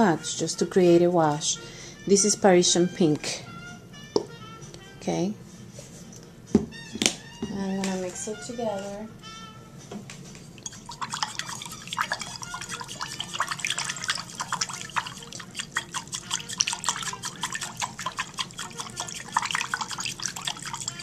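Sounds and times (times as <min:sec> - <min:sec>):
hand splashing water in a bowl: 0:10.6 - 0:21.0.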